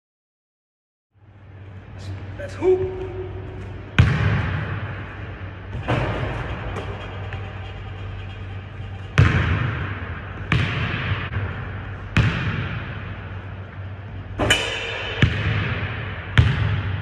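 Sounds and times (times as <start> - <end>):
steady low hum: 1.1 - 17.0
basketball bouncing on wooden floor: 4.0 - 4.8, 9.0 - 11.4, 16.4 - 17.0.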